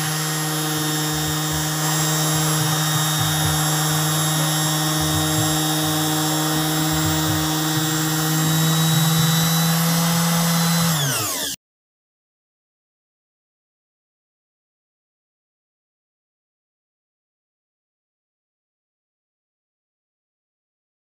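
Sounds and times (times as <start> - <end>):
orbital sander on wood: 0.0 - 11.6.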